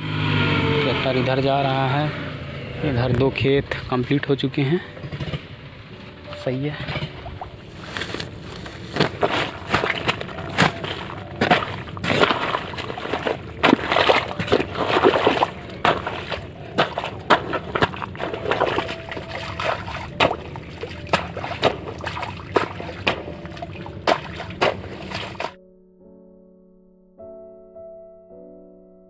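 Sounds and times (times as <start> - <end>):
hoe sloshing in wet mud: 6.3 - 25.6.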